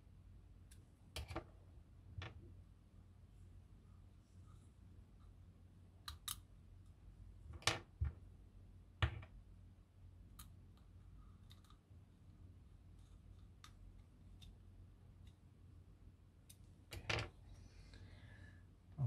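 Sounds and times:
plastic parts clicking and tapping: 1.2 - 1.5.

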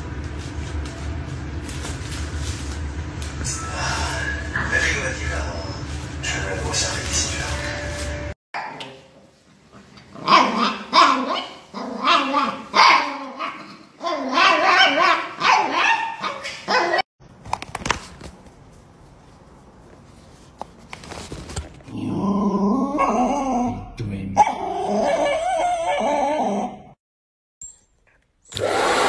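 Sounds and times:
wavering voice-like sound: 3.4 - 4.9
dog barking and growling: 10.1 - 17.0, 21.9 - 26.9.

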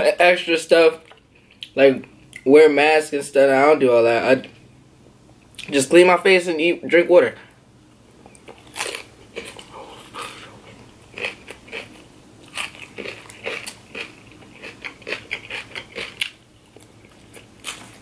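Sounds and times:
crunchy chewing of salad: 7.8 - 18.0.

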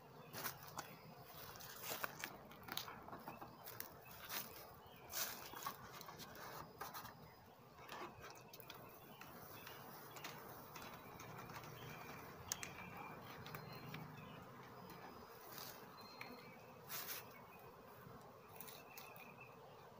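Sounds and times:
bees humming: 0.0 - 19.9.

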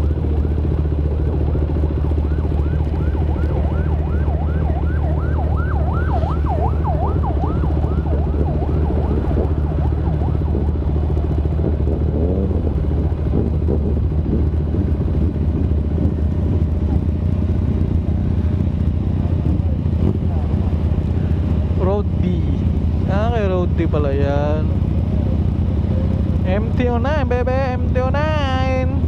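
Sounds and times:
motorcycle engines idling: 0.0 - 29.0
motorcycle pulling away: 0.0 - 29.0
siren yelping: 1.0 - 11.3.

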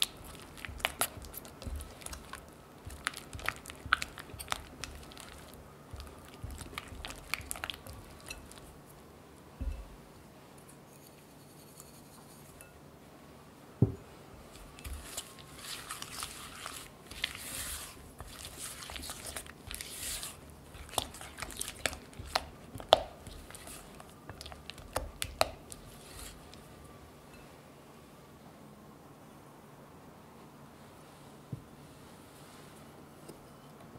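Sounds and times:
spatula swishing and scraping: 0.0 - 8.8, 14.3 - 26.6
spatula tapping glass bowl: 5.9 - 8.7, 9.6 - 10.0.

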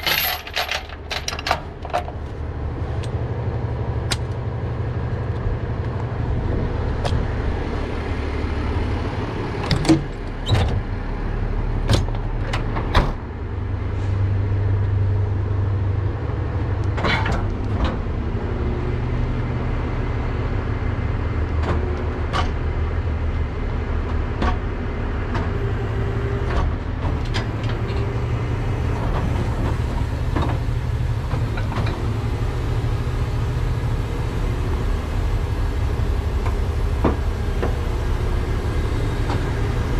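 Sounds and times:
metal clanks and knocks: 0.0 - 2.4
truck engine idling: 0.0 - 39.9.

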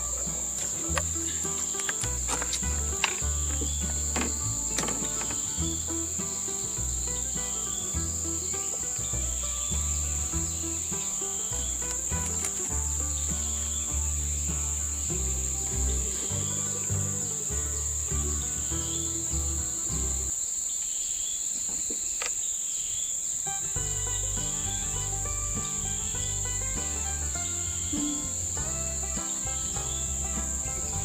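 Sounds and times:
music of sustained notes: 0.0 - 20.3, 23.5 - 31.0.

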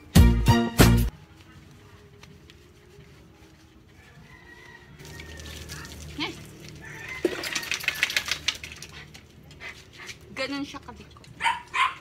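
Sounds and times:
rattling and splashing: 5.0 - 9.6.

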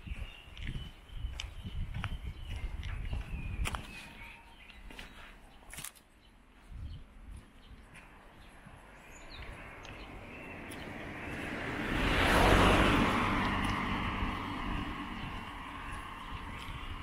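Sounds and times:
car passing on paved road: 6.4 - 17.0.

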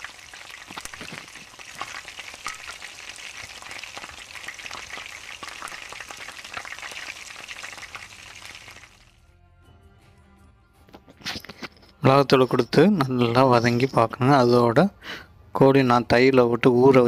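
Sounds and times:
onions sizzling in hot oil: 0.0 - 9.1.

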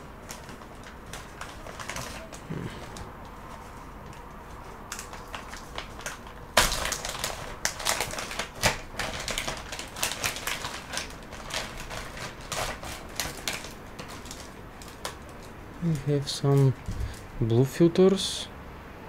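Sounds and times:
packet crinkling: 0.0 - 17.4
packet tearing open: 0.2 - 3.1, 4.9 - 17.2.

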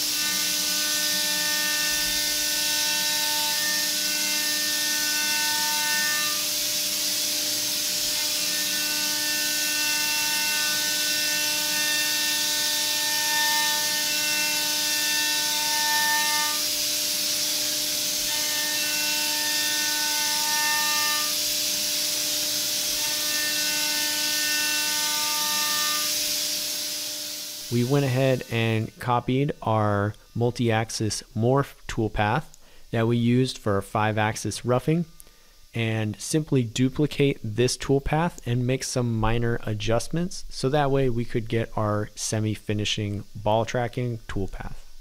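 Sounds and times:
machine spindle whine: 0.0 - 29.6
high singing cutting tone: 27.5 - 30.6.

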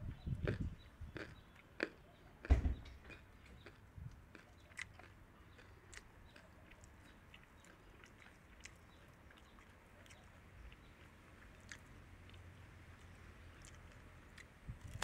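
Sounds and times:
guinea pigs chewing lettuce: 3.1 - 15.0.

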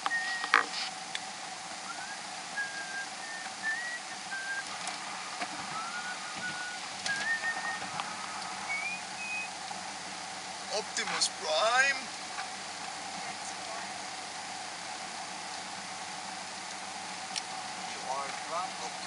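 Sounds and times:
person whistling a tune: 0.0 - 0.5, 1.9 - 4.7, 5.7 - 9.5
car cabin hum on the road: 0.0 - 19.0.

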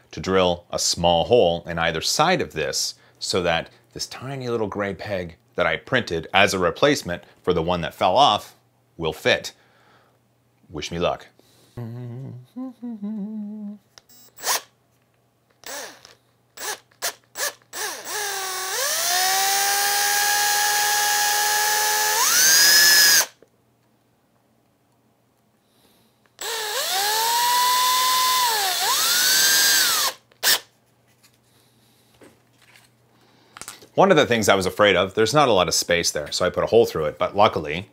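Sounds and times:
cordless drill whining: 14.2 - 14.7, 15.6 - 23.3, 26.4 - 30.6.

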